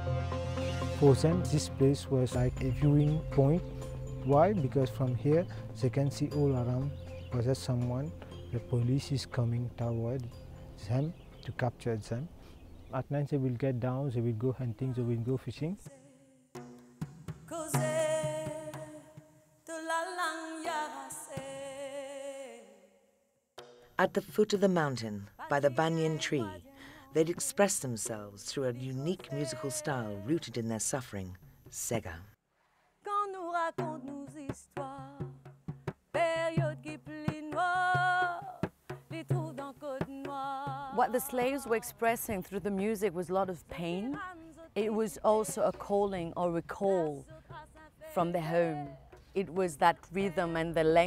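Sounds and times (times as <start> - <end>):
frame drum beats: 16.6 - 19.3, 33.8 - 42.4
woman singing: 17.5 - 22.8, 25.4 - 27.8, 28.5 - 30.5, 33.1 - 35.4, 36.2 - 51.0.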